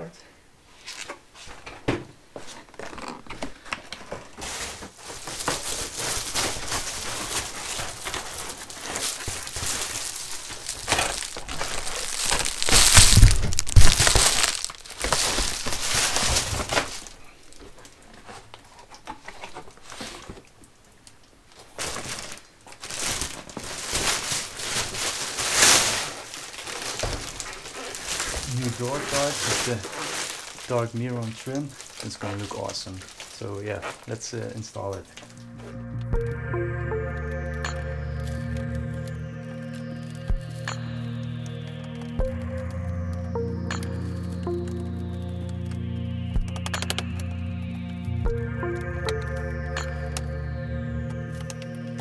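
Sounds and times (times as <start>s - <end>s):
plastic panel scraping and rustling: 0.8s - 12.8s.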